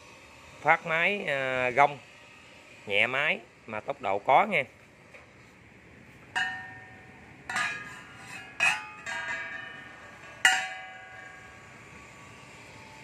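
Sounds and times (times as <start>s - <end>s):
metal propeller ringing knocks: 6.3s - 11.6s.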